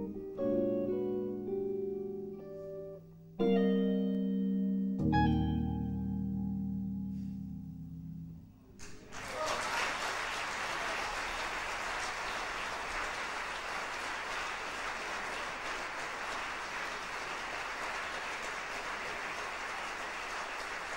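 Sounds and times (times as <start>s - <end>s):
jazz guitar chord: 0.0s - 8.5s
audience applause: 8.8s - 20.9s.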